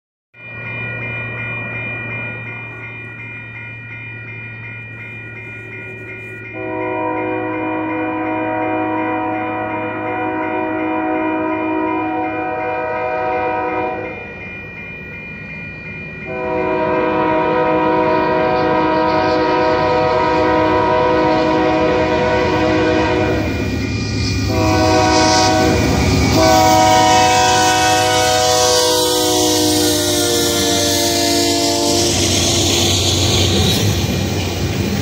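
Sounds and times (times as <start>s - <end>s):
train engine and wheels rumbling: 0.4s - 35.0s
locomotive air horn blasts: 6.5s - 14.2s, 16.3s - 23.6s, 24.5s - 33.1s.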